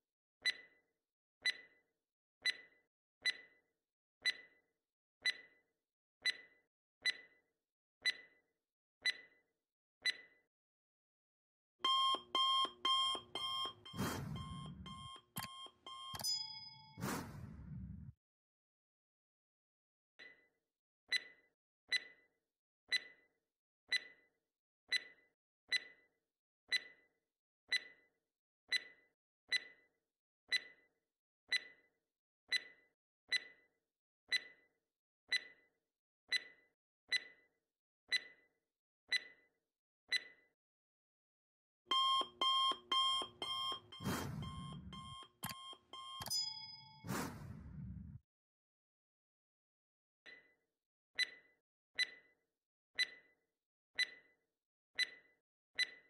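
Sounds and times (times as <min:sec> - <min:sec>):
clock ticking: 0:11.8 - 0:17.5, 0:41.9 - 0:47.5
alarm clock beeping: 0:11.8 - 0:18.1, 0:41.9 - 0:48.2.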